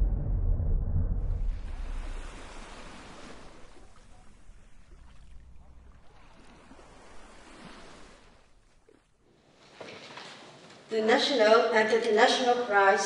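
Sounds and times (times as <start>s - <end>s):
ocean surf washing: 1.0s - 9.1s.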